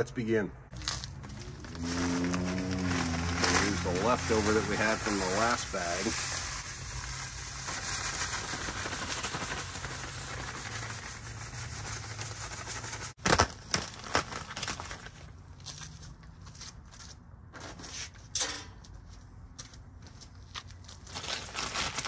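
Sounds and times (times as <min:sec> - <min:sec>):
sand pouring onto gravel: 0:00.7 - 0:13.2
plastic bag crinkling: 0:00.7 - 0:15.5, 0:21.0 - 0:22.0.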